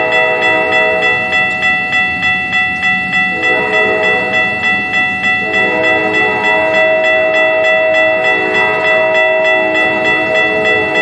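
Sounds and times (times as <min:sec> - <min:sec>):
train horn blowing: 0:00.0 - 0:01.4, 0:03.3 - 0:04.6, 0:05.4 - 0:11.0
railroad crossing bell ringing: 0:00.0 - 0:11.0.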